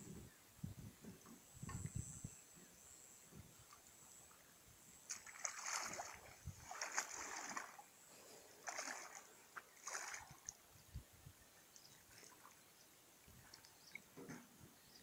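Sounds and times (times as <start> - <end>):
wading through shallow water: 5.0 - 10.7, 11.8 - 14.1.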